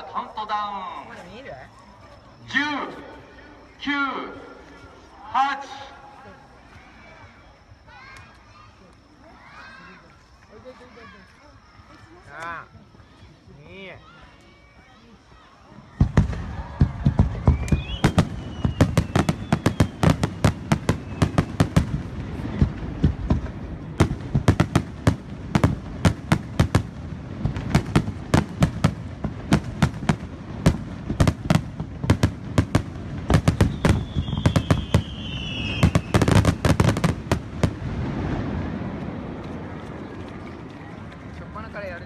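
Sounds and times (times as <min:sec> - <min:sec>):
fireworks bursting with crackling: 0:15.7 - 0:42.0
falling whistle: 0:16.5 - 0:21.6, 0:33.5 - 0:36.4.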